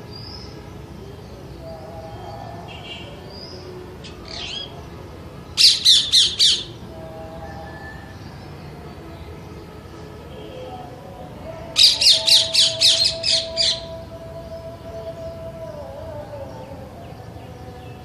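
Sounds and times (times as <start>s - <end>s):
parrot squawking: 5.6s - 6.7s, 11.8s - 13.9s.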